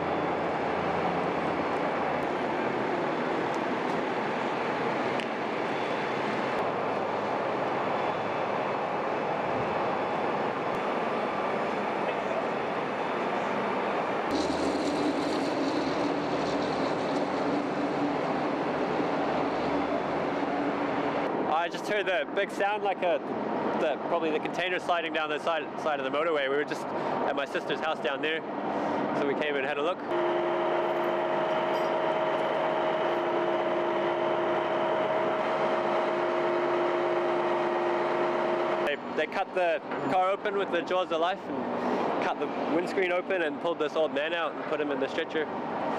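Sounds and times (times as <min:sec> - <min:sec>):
heavy machinery droning: 0:00.0 - 0:21.3, 0:30.1 - 0:39.2
traffic rumble: 0:00.0 - 0:45.9
droning tone: 0:30.1 - 0:38.9
two-note hum: 0:30.1 - 0:38.9.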